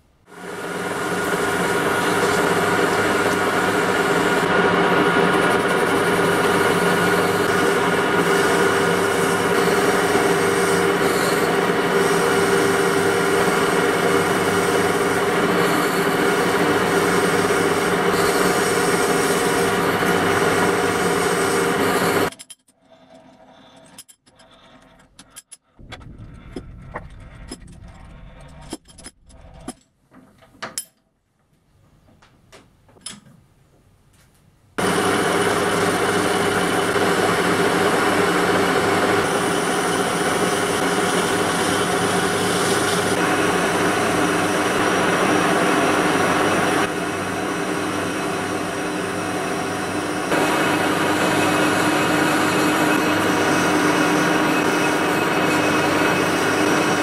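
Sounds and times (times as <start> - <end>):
lathe running: 0.3 - 22.3, 34.8 - 57.0
metal parts clicking and knocking: 22.3 - 22.8, 23.8 - 25.8, 26.6 - 31.1.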